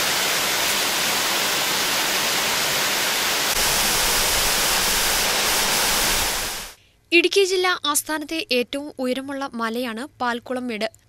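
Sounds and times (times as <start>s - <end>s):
waterfall rushing: 0.0s - 6.8s.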